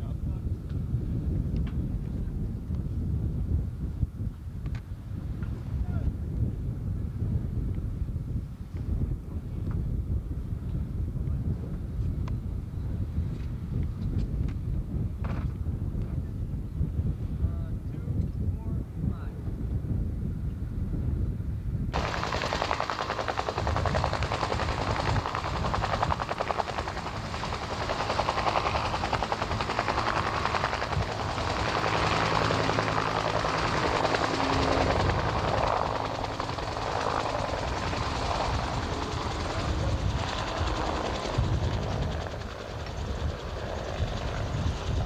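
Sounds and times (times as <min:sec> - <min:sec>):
helicopter engine and rotor: 0:22.0 - 0:45.0.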